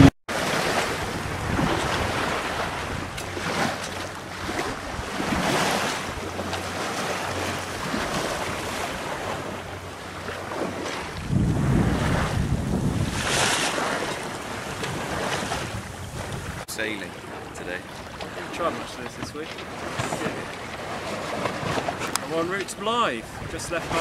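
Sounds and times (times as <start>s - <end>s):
wind buffeting microphone: 0.0s - 22.4s, 23.2s - 24.0s
waves washing along hull: 0.0s - 24.0s.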